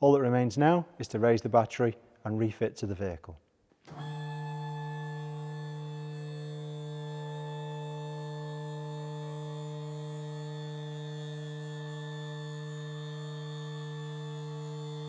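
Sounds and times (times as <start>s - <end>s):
lift motor humming: 3.9s - 15.0s.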